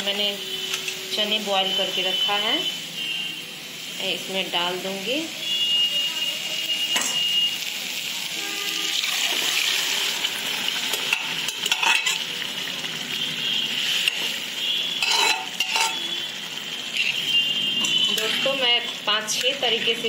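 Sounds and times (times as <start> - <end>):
food sizzling in a pan: 0.0 - 20.0
liquid poured into hot pan: 8.7 - 12.4
metal spatula scraping a pan: 11.0 - 12.3, 13.8 - 16.2, 17.0 - 19.4.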